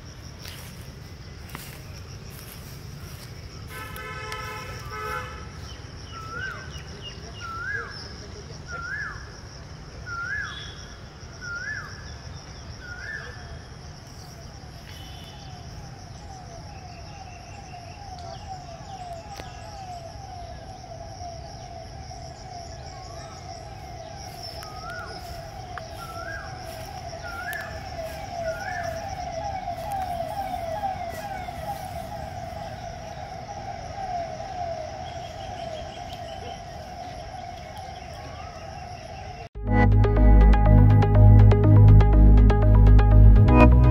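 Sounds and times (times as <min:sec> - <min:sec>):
fast-repeating warbling tone: 0:39.6 - 0:43.9.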